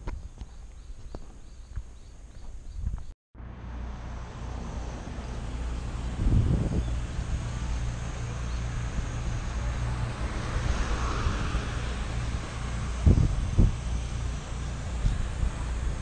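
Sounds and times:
moving vehicle rumble: 0:00.0 - 0:16.0.

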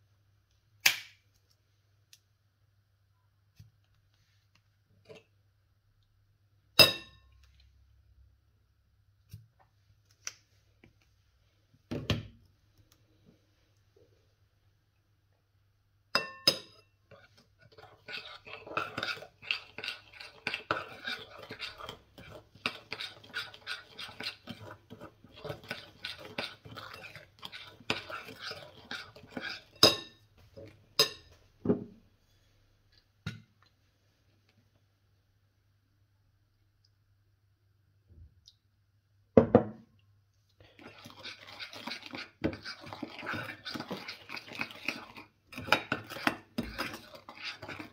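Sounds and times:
utensil scraping cookware: 0:17.1 - 0:30.1, 0:40.7 - 0:47.9.

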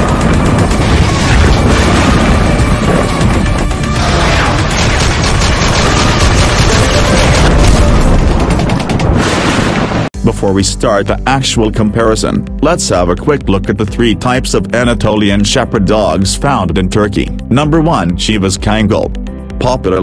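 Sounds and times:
loud intro music: 0:00.0 - 0:09.3
gunfire sound effects: 0:00.0 - 0:09.7
booming hits: 0:00.0 - 0:10.1.

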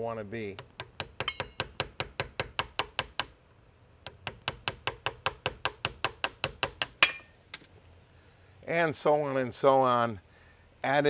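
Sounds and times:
hammer tapping steel chisel: 0:00.6 - 0:03.3, 0:04.0 - 0:07.2.

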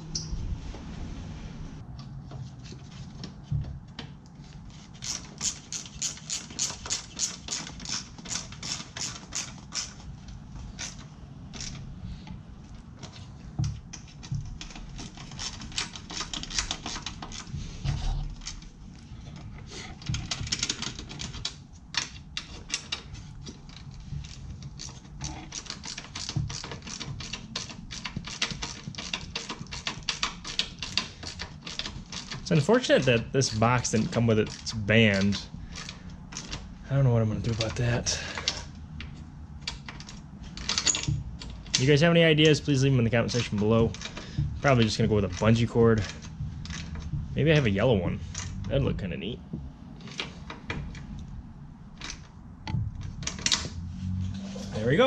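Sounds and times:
hand ratchet clicking: 0:04.9 - 0:10.1, 0:13.6 - 0:18.7, 0:20.0 - 0:36.7, 0:37.5 - 0:47.7
dull metal knocks: 0:43.9 - 0:47.6, 0:52.5 - 0:53.9.

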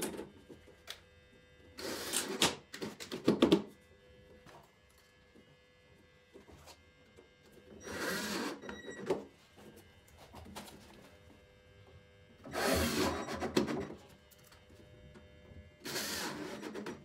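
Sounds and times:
cordless drill running: 0:07.8 - 0:08.6, 0:12.4 - 0:13.4, 0:15.8 - 0:16.7.

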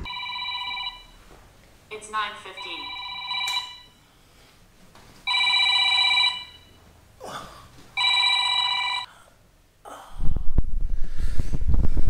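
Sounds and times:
electronic telephone ringing: 0:00.0 - 0:01.2, 0:02.5 - 0:04.0, 0:05.3 - 0:06.8, 0:08.0 - 0:09.1.

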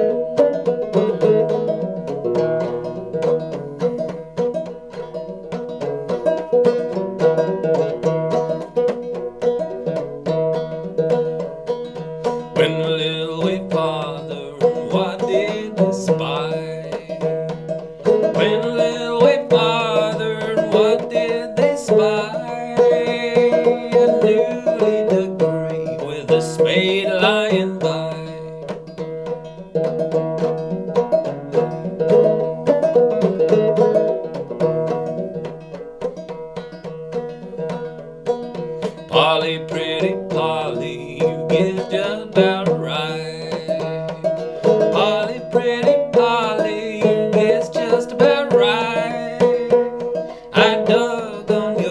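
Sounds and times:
banjo played clawhammer: 0:00.0 - 0:51.9
man singing: 0:12.2 - 0:28.8, 0:38.8 - 0:51.9.

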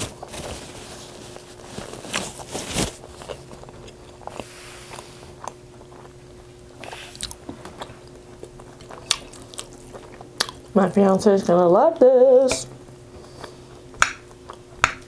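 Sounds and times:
paper napkin rustling: 0:00.0 - 0:03.3
faint steady hum: 0:00.0 - 0:15.0
close chewing mouth sounds: 0:03.2 - 0:11.2, 0:13.2 - 0:14.8.

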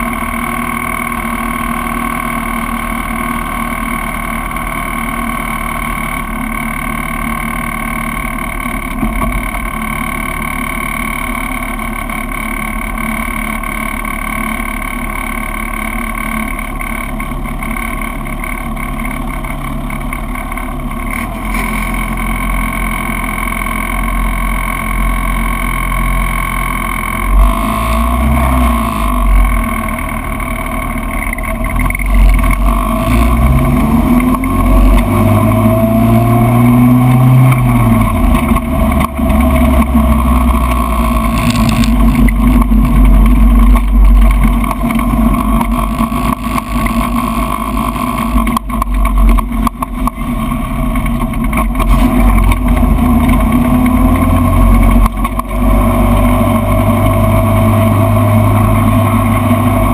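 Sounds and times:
race car engine running: 0:00.0 - 0:59.9
low rumble: 0:27.2 - 0:59.9.

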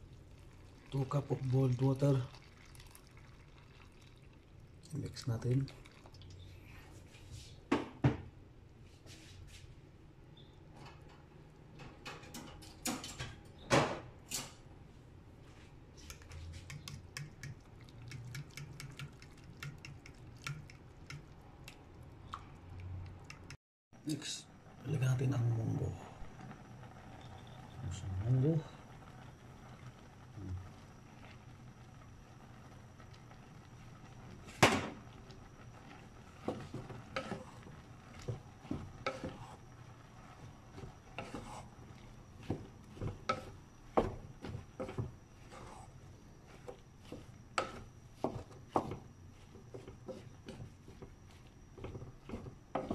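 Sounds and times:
spoon clicking against a bowl: 0:16.1 - 0:21.8
wooden spatula scraping and knocking pot: 0:34.0 - 0:52.9.

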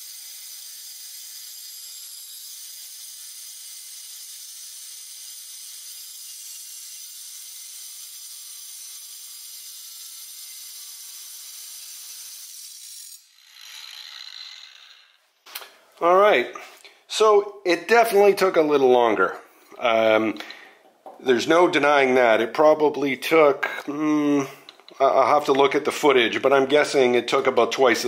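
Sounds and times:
angle grinder cutting steel: 0:00.0 - 0:15.2.

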